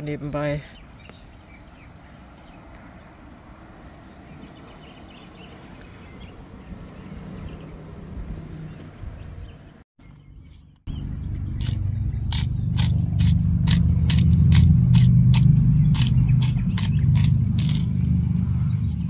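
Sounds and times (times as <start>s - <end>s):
loud low rumble: 10.9s - 19.0s
spice mill grinding: 11.6s - 18.2s.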